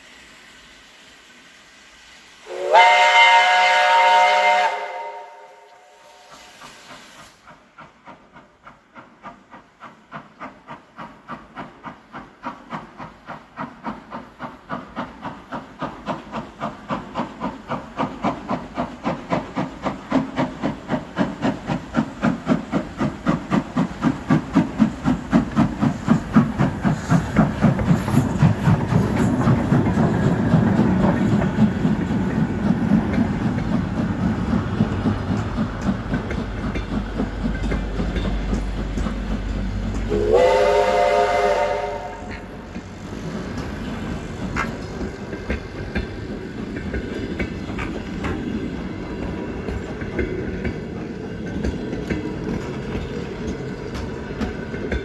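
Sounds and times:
steam locomotive chuffing: 0:00.0 - 0:55.0
steam locomotive chime whistle: 0:02.4 - 0:06.6, 0:40.1 - 0:42.7.

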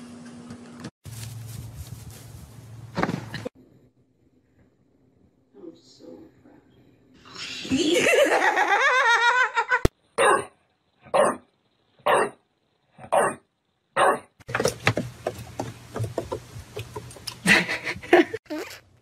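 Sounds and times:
scuffing noise: 0:00.8 - 0:03.1
person laughing: 0:07.6 - 0:09.9, 0:17.4 - 0:18.7
dog barking: 0:10.2 - 0:11.4, 0:12.0 - 0:12.4, 0:13.0 - 0:13.4, 0:14.0 - 0:14.3.

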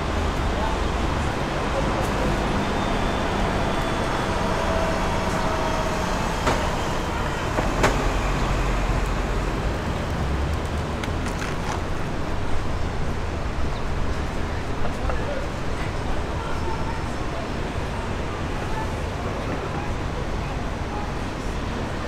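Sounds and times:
cars and buses driving past: 0:00.0 - 0:22.0.

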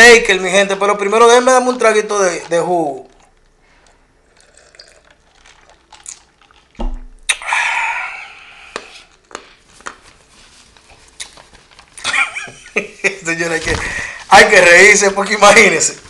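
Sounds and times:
noisy sip: 0:03.0 - 0:09.2
handling and mouth clicks: 0:11.1 - 0:12.0.

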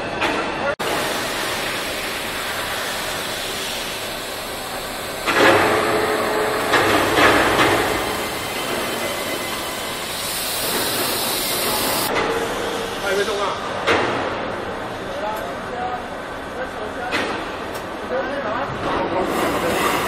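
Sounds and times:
machine-tool factory din: 0:00.0 - 0:20.0
high hiss: 0:00.9 - 0:05.3.

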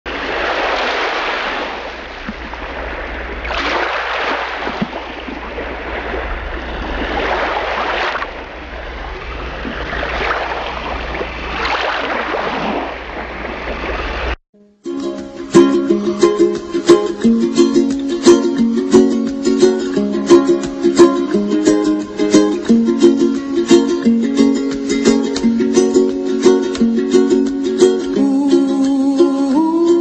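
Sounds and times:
ocean waves rushing and washing: 0:00.1 - 0:14.4
low surf rumble: 0:05.0 - 0:11.7.

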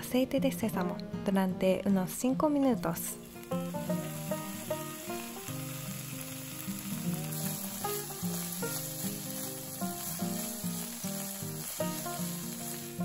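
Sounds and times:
background melody: 0:00.0 - 0:13.0
vegetables sizzling in a frying pan: 0:03.1 - 0:13.0.

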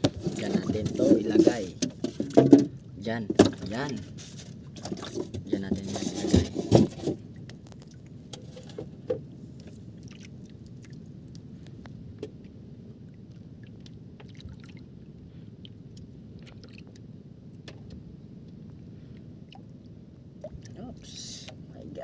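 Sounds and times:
water washing around boat: 0:00.0 - 0:11.7, 0:12.4 - 0:17.0
wind: 0:00.0 - 0:22.0.

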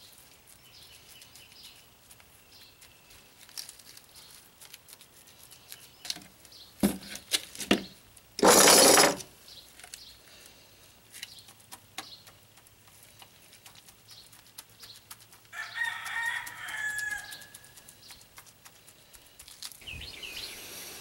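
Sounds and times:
rooster crowing: 0:15.5 - 0:17.7.

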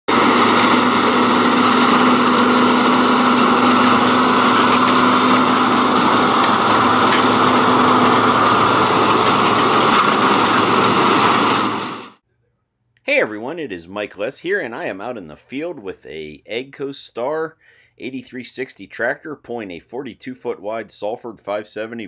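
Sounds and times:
tractor diesel engine under load: 0:00.1 - 0:12.2.

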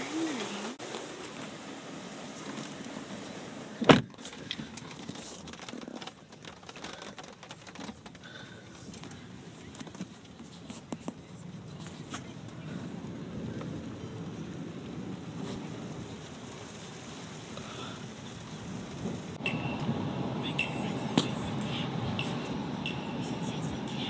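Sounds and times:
phone handling and rustling: 0:03.9 - 0:11.2.

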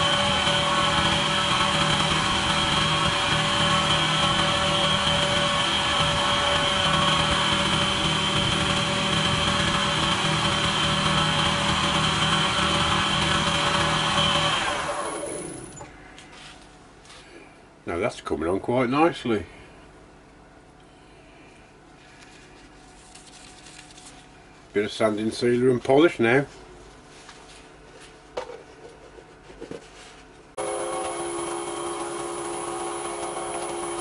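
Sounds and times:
lathe spinning down: 0:00.0 - 0:15.9, 0:30.6 - 0:34.0
wood lathe whining: 0:00.0 - 0:15.9, 0:30.6 - 0:34.0.

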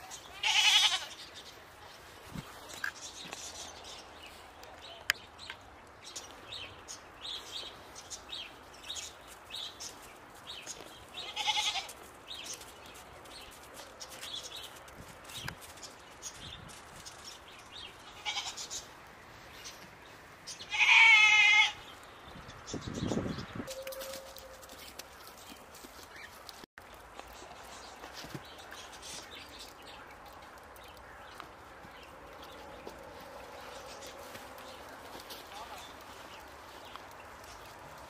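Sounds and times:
goats bleating: 0:00.3 - 0:01.2, 0:11.2 - 0:11.9, 0:20.7 - 0:21.8.

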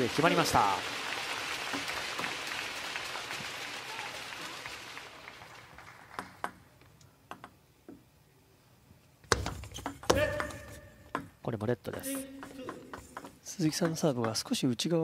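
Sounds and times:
crowd applause: 0:00.0 - 0:06.4
table tennis ball clicks: 0:06.2 - 0:08.0.

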